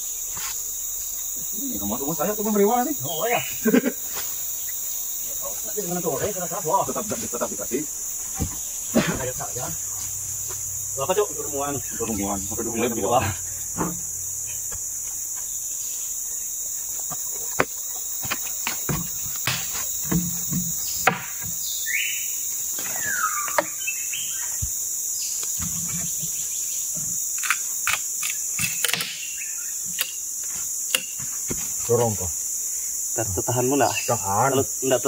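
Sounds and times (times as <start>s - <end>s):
insects droning: 0.0s - 35.0s
wooden knocks: 17.1s - 21.6s.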